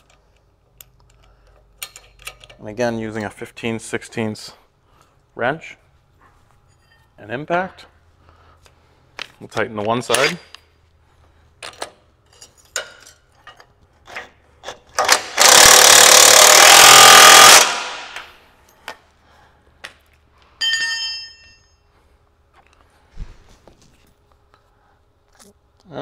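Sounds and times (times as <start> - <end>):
clicks of tools being handled: 0.0 - 2.6
impact wrench hammering: 15.0 - 18.3
ringing metal clink: 20.6 - 21.9.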